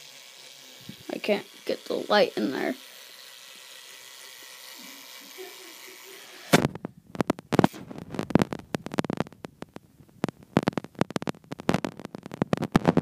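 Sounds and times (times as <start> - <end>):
fingers knocking and rubbing phone: 6.7 - 13.0.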